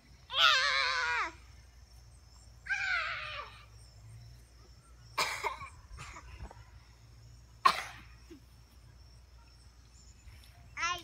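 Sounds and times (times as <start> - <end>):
person coughing: 5.2 - 6.2, 7.6 - 8.1.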